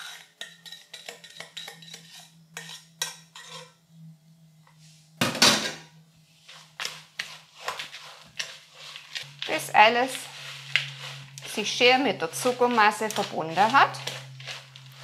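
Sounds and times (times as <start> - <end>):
kitchenware clatter: 0.0 - 3.8, 5.2 - 5.9
spatula scraping a steel saucepan: 0.0 - 3.9, 6.5 - 15.0.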